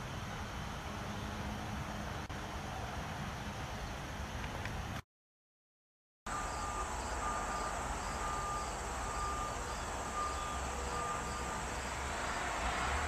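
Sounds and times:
faint pulsed tone: 0:06.3 - 0:12.0.

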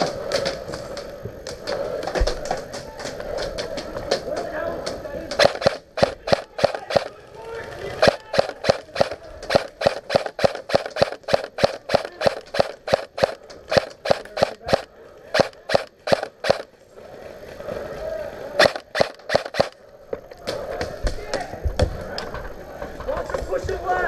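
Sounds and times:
airsoft rifle shots: 0:05.4 - 0:07.2, 0:08.0 - 0:16.7, 0:18.6 - 0:19.8.

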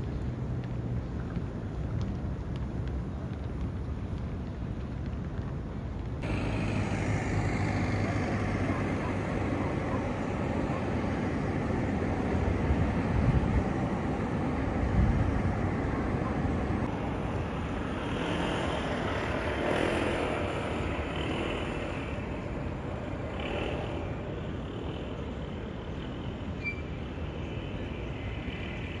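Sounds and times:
motor scooter passing: 0:06.2 - 0:25.2
cars passing: 0:06.2 - 0:29.0.

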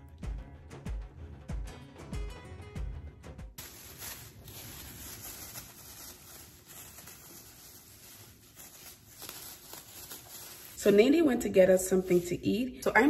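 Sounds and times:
plastic gloves crinkling: 0:03.6 - 0:13.0
room hiss: 0:03.6 - 0:13.0.

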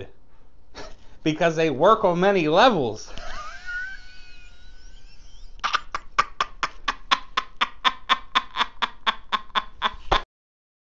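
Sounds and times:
man laughing: 0:03.1 - 0:10.2.

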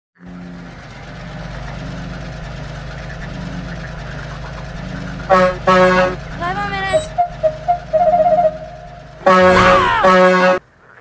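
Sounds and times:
diesel locomotive engine rumbling: 0:00.2 - 0:10.6
train horn blast: 0:05.3 - 0:10.6.

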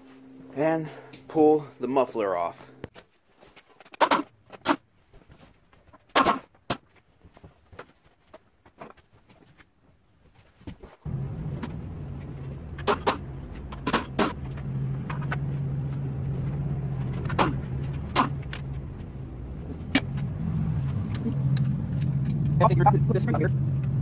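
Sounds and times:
low mechanical hum: 0:00.0 - 0:02.9, 0:11.0 - 0:24.0.

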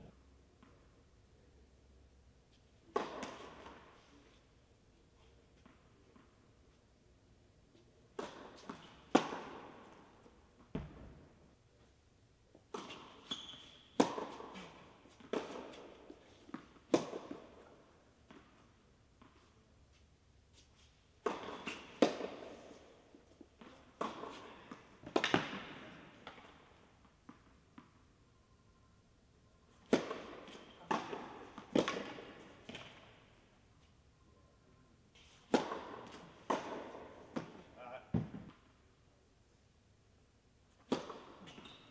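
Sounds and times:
tennis ball bouncing on court: 0:02.9 - 0:04.0, 0:08.1 - 0:11.2, 0:12.7 - 0:18.6, 0:21.2 - 0:22.6, 0:23.5 - 0:28.0, 0:29.8 - 0:33.1, 0:35.4 - 0:38.6, 0:40.8 - 0:41.9
tennis ball struck by rackets: 0:02.9 - 0:04.0, 0:08.1 - 0:11.2, 0:12.7 - 0:18.6, 0:21.2 - 0:22.7, 0:23.6 - 0:28.0, 0:29.8 - 0:33.1, 0:35.4 - 0:38.6, 0:40.8 - 0:41.8.

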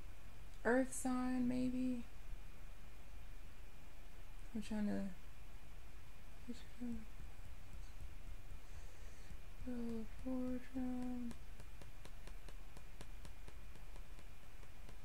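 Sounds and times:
woman humming: 0:09.6 - 0:11.4.

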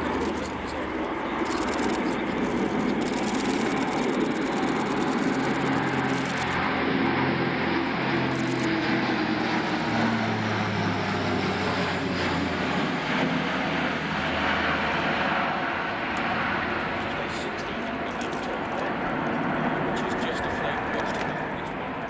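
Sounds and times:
propeller aircraft droning overhead: 0:00.0 - 0:22.0.

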